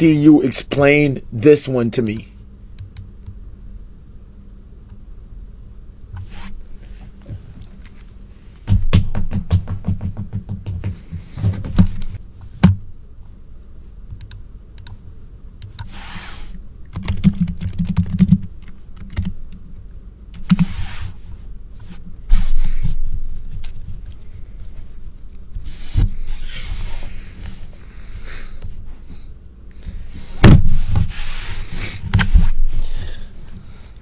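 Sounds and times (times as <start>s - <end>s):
dull thumps: 8.6s - 12.8s.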